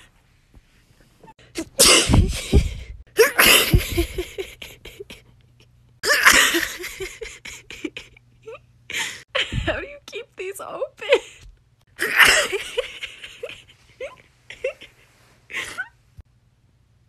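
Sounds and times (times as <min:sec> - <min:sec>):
woman sneezing: 0:01.6 - 0:03.8.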